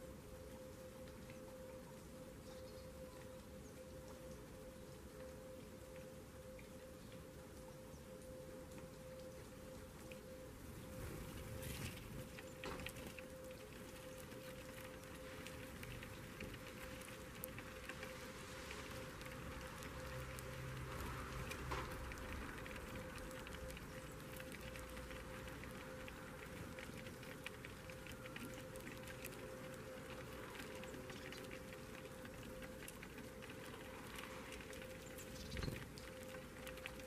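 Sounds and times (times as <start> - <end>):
sparrows pecking seed: 10.8 - 37.0.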